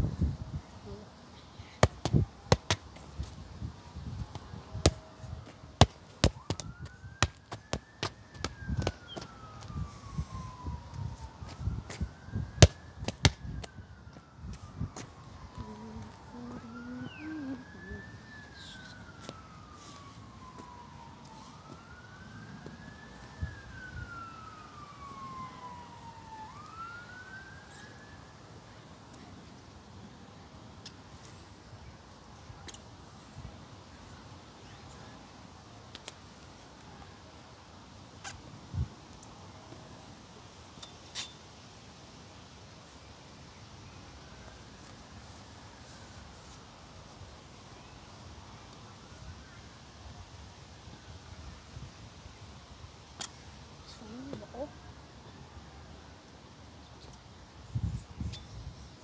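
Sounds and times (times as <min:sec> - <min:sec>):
faint emergency siren wailing: 0:00.1 - 0:40.4, 0:42.8 - 0:58.1
foot kicking football thuds: 0:01.8 - 0:03.0, 0:05.8 - 0:09.3, 0:12.6 - 0:13.4
faint high rising tone: 0:14.3 - 0:22.7.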